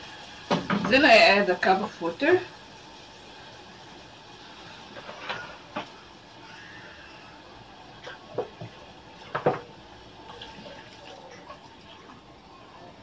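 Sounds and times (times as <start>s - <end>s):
hot pan hissing and bubbling: 0.0s - 13.0s
water pouring: 10.2s - 12.8s.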